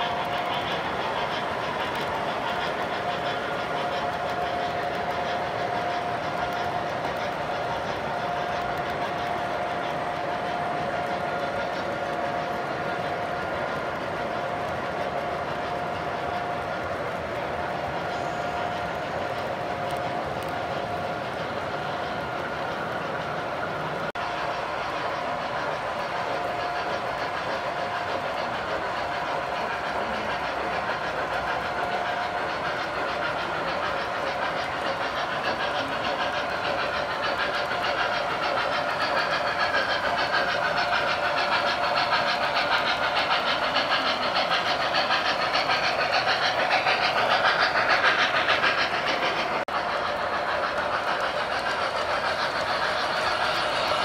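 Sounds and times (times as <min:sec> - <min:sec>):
model train wheels rattling: 0:00.0 - 0:54.0
steam hiss: 0:00.0 - 0:54.0.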